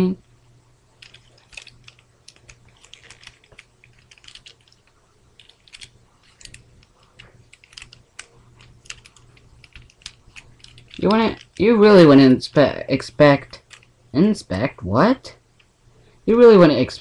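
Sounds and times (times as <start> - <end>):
plastic toy parts clicking: 1.0 - 11.6, 13.5 - 13.9.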